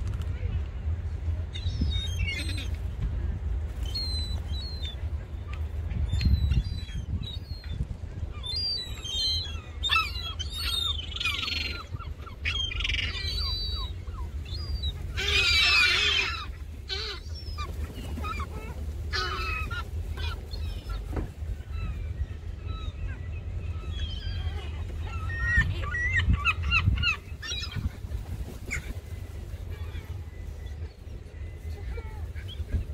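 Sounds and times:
gulls crying: 3.6 - 32.9
gulls squawking harshly: 14.6 - 21.1.

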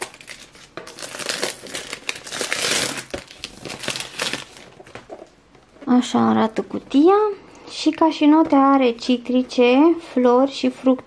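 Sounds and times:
plastic wrap crinkling: 0.0 - 6.0.

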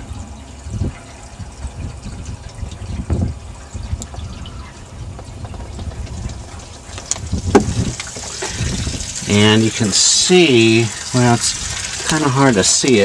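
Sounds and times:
water pouring splashing and gurgling: 0.0 - 13.0
sharp knocks: 7.5 - 8.0.

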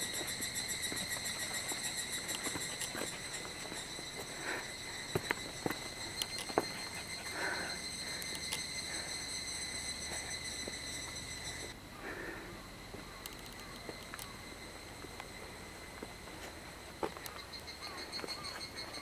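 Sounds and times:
footsteps on dirt trail: 0.0 - 8.4, 15.3 - 18.7
steady high-pitched whine: 0.0 - 19.0.

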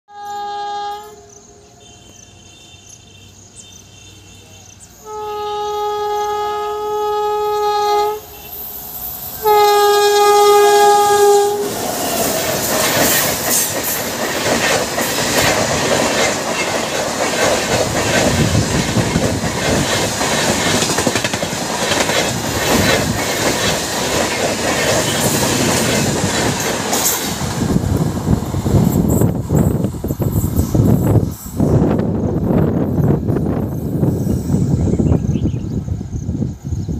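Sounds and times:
locomotive horn blasts: 0.1 - 8.6, 9.4 - 11.8
train wheels clattering over rail joints: 11.7 - 31.4.

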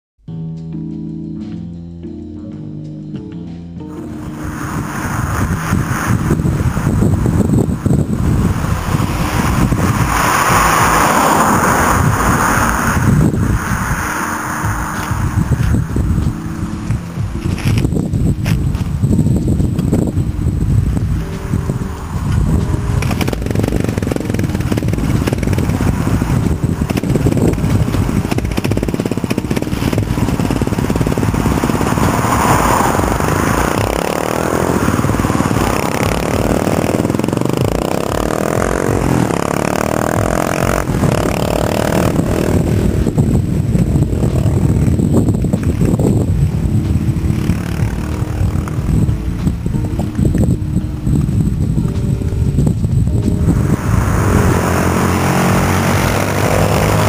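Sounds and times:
wind rumble on microphone: 3.8 - 57.0
car driving past: 3.9 - 16.8, 30.3 - 41.2, 53.4 - 57.0
motorcycle engine revving: 3.9 - 57.0.

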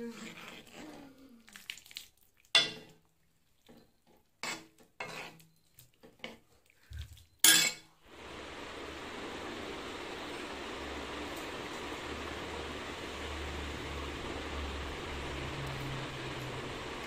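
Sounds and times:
steel ladle clinking on metal pot: 7.4 - 7.8.

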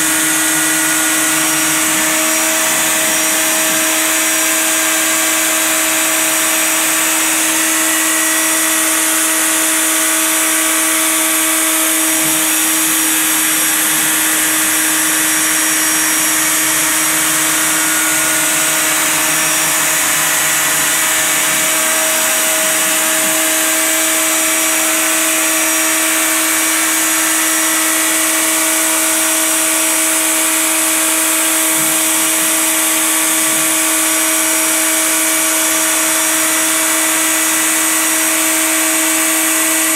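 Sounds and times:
low hum: 0.0 - 28.2
router spindle whine and hiss: 0.0 - 39.9.

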